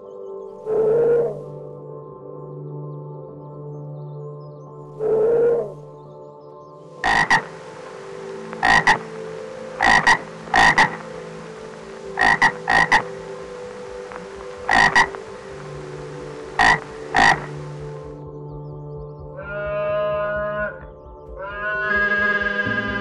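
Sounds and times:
frog croaking: 0:00.7 - 0:01.4, 0:05.0 - 0:05.8, 0:07.0 - 0:18.2.

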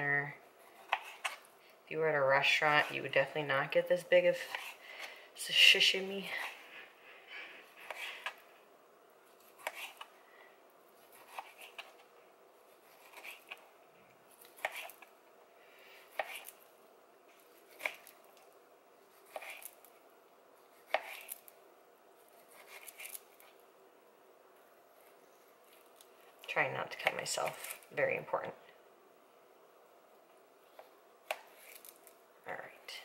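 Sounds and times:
knife slicing fish: 0:09.4 - 0:10.1, 0:11.0 - 0:11.9, 0:12.8 - 0:13.6, 0:14.4 - 0:15.1, 0:16.1 - 0:16.6, 0:17.5 - 0:18.2, 0:19.1 - 0:19.8, 0:20.7 - 0:21.5, 0:22.3 - 0:23.5.

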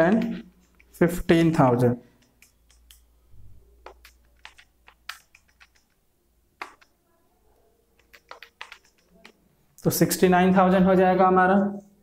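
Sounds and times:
calculator keys clicking: 0:00.3 - 0:03.1, 0:03.8 - 0:06.0, 0:06.6 - 0:07.0, 0:08.0 - 0:09.4.

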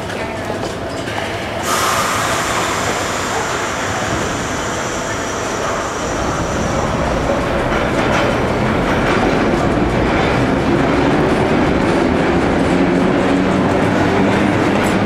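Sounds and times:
subway car motors and wheels: 0:00.0 - 0:15.0
air hiss: 0:01.6 - 0:08.3.

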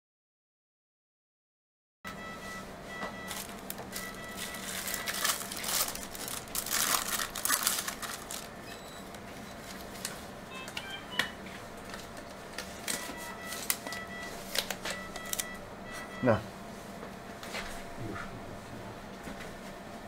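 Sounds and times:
plastic crinkling and rustling: 0:03.3 - 0:08.6.

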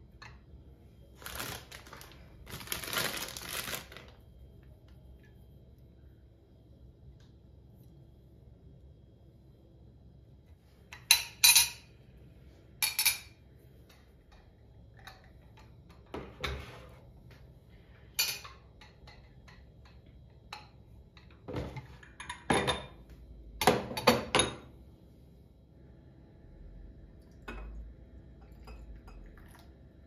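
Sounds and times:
dishes and glassware clinking: 0:11.0 - 0:11.9, 0:12.8 - 0:13.4, 0:18.2 - 0:19.6, 0:21.5 - 0:23.0, 0:23.6 - 0:24.7.

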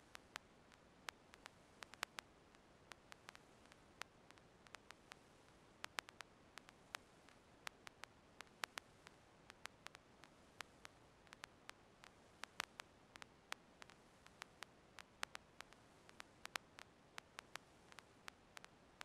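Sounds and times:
faint recording hiss: 0:00.0 - 0:19.0
sharp clicks: 0:05.8 - 0:18.7.

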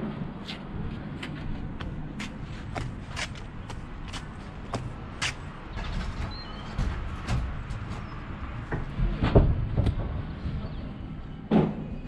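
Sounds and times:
footsteps on wooden boards: 0:00.9 - 0:10.0.

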